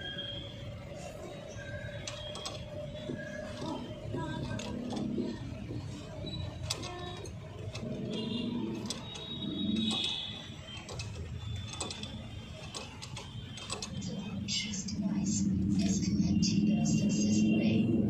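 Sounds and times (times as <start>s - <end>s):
low workshop background: 0.0s - 17.2s
ratchet clicking: 2.0s - 14.2s.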